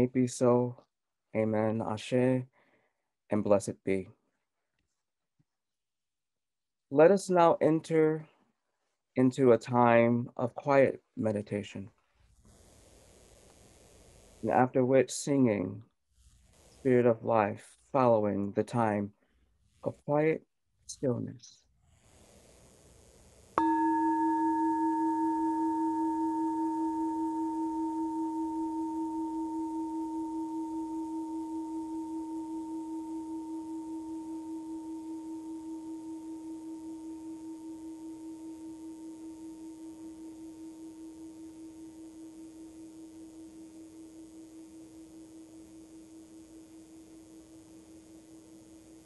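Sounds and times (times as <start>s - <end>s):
singing bowl ringing: 23.6s - 49.0s.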